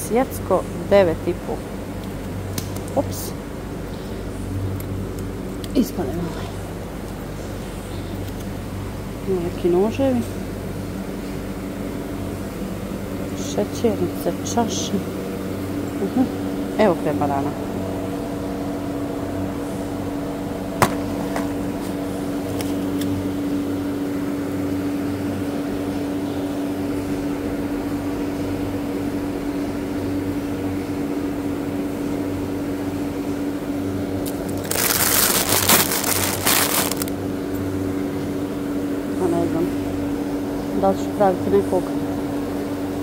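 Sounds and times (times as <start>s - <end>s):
electrical machinery hum: 0.0s - 43.0s
loud rustling and crinkling: 34.2s - 37.2s.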